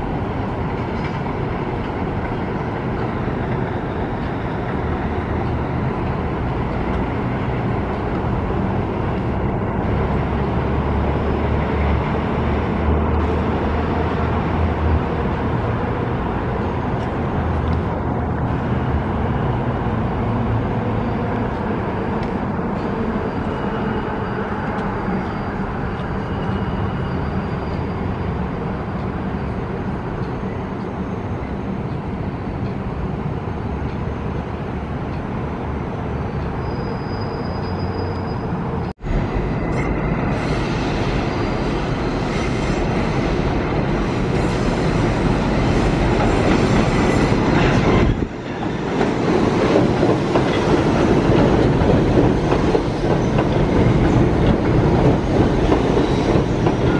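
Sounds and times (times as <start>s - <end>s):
subway train running: 0.0s - 56.9s.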